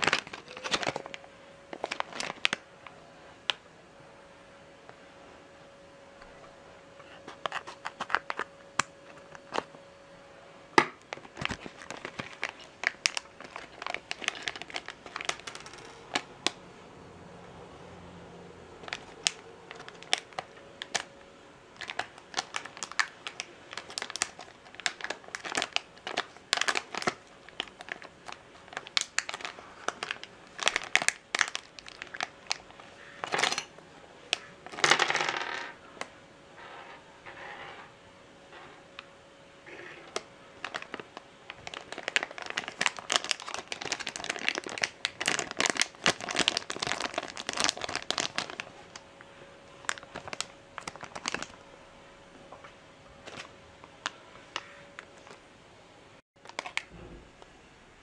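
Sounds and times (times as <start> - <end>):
plastic bag crinkling: 0.0 - 3.0, 10.8 - 16.6, 18.8 - 21.1, 21.8 - 33.7, 39.7 - 49.0, 49.7 - 51.6, 53.2 - 55.4, 56.4 - 57.0.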